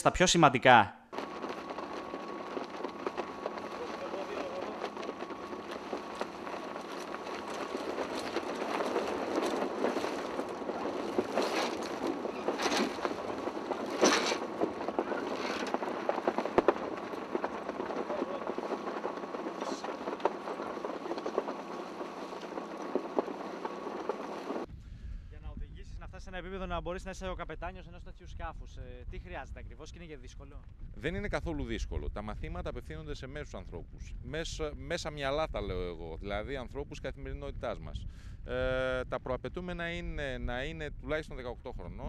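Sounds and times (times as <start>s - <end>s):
sail and rigging clacks: 1.1s - 24.7s
faint voices: 3.5s - 7.8s, 17.6s - 22.7s.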